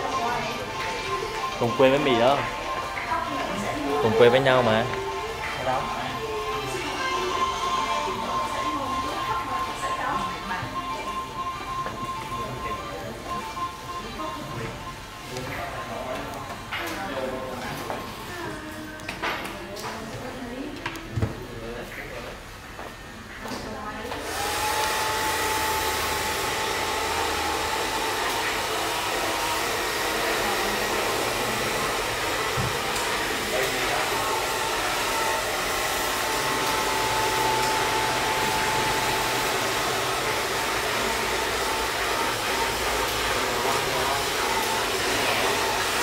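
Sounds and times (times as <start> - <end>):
hair dryer blowing: 0.0 - 10.3, 24.1 - 46.0.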